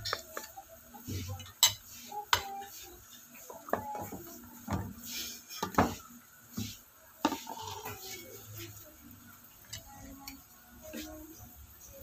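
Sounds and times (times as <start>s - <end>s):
utensils and dishes clinking: 0.0s - 4.8s, 7.2s - 8.8s.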